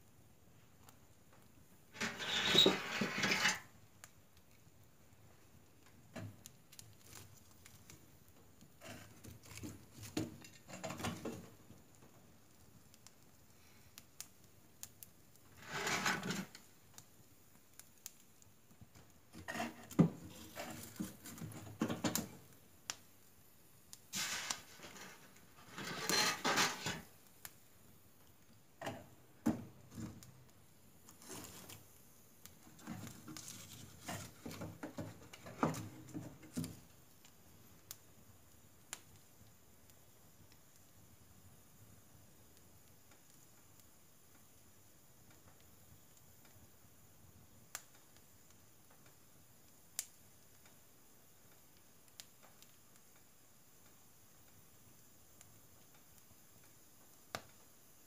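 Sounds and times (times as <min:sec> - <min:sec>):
wood fire crackling and popping: 0:00.0 - 0:58.0
logs scraping and knocking: 0:01.9 - 0:03.7, 0:15.6 - 0:16.6, 0:19.3 - 0:22.2, 0:24.2 - 0:27.1, 0:32.8 - 0:36.7.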